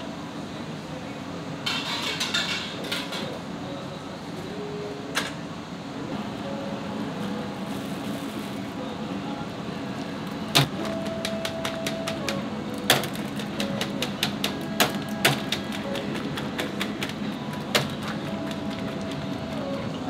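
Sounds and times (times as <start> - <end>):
kitchen machinery hum: 0.0 - 20.0
utensils and dishes clinking: 1.6 - 3.4.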